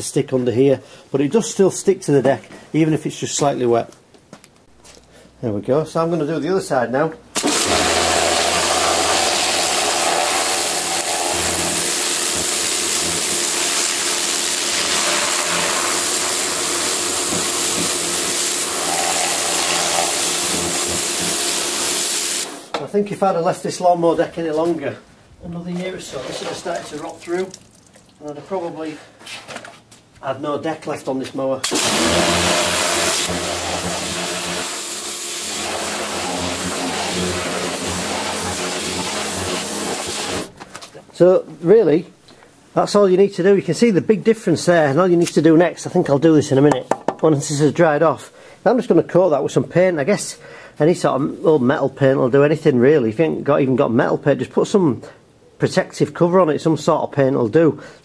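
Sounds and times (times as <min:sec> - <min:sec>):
pump humming: 0:07.4 - 0:22.6, 0:31.7 - 0:40.5
pressure washer jet hissing: 0:07.4 - 0:22.7, 0:31.6 - 0:40.6.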